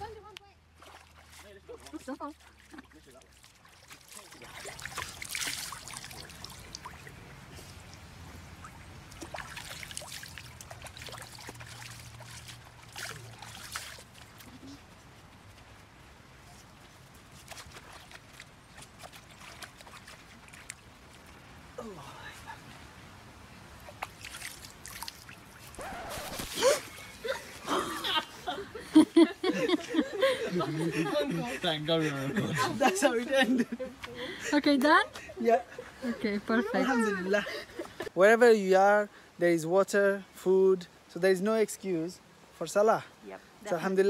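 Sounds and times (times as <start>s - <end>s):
stream trickling: 0.0s - 44.0s
hands splashing water: 0.8s - 8.0s, 9.1s - 14.5s, 23.9s - 27.9s.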